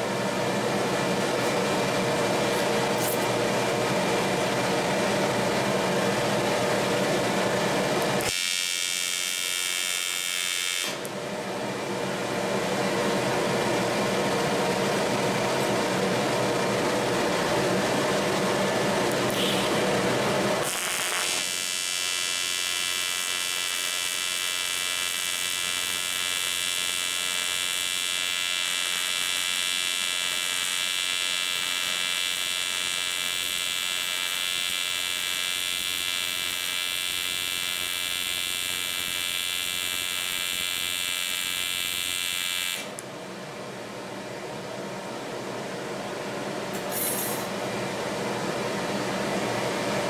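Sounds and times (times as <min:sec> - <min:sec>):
welding arc buzzing: 0:01.0 - 0:05.6, 0:07.6 - 0:11.2, 0:17.0 - 0:43.0.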